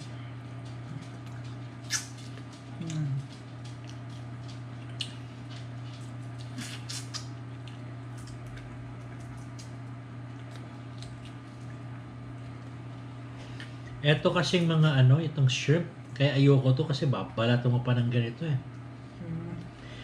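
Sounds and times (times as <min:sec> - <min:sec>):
steady low hum: 0:00.0 - 0:20.0
soft wet eating clicks and smacks: 0:00.6 - 0:12.8.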